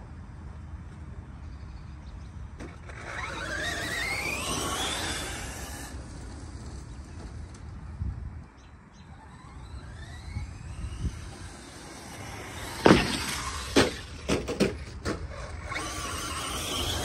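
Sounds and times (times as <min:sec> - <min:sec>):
electric motor whining: 0:02.6 - 0:08.0, 0:09.1 - 0:17.0.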